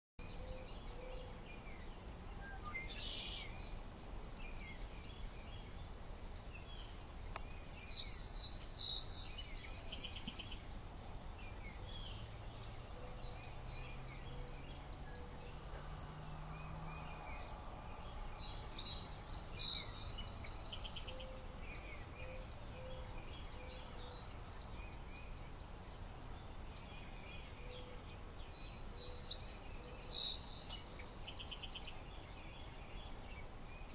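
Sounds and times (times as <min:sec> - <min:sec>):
birds chirping: 0:00.2 - 0:33.9
faint low drone: 0:00.2 - 0:33.9
low background noise: 0:00.2 - 0:33.9
bird trill: 0:18.4 - 0:25.5.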